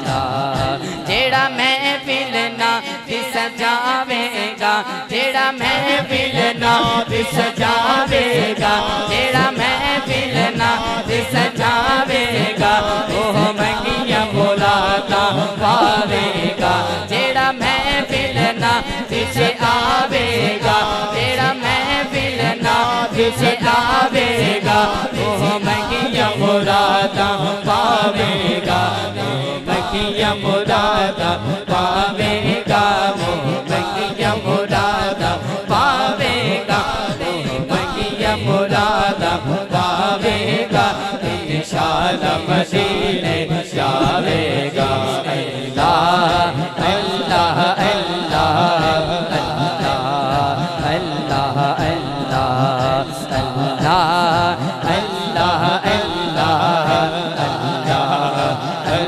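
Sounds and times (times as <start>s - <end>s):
man chanting into a microphone: 0.0s - 59.0s
fast low beat: 6.6s - 7.4s, 14.8s - 17.1s.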